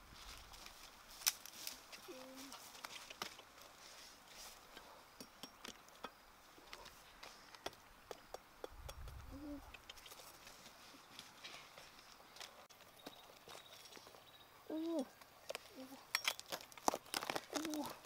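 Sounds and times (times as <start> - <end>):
bark and dry leaves clicking: 0.2 - 3.8, 9.6 - 10.6, 14.8 - 18.0.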